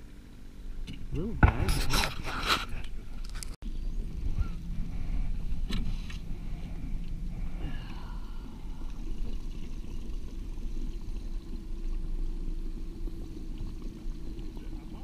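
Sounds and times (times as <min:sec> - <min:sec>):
outboard motor running: 0:00.0 - 0:15.0
water splashing and sloshing: 0:03.9 - 0:15.0.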